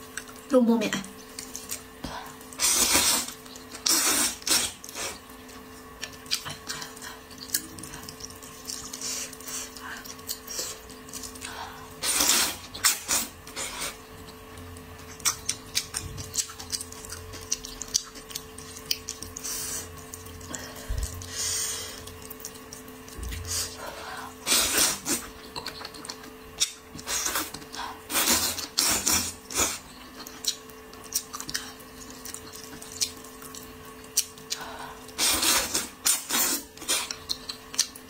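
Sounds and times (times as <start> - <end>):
faint steady hum: 0.0 - 38.0
chewing and mouth sounds: 1.1 - 23.8, 24.4 - 38.0
person slurping noodles: 2.6 - 5.2, 35.2 - 37.2.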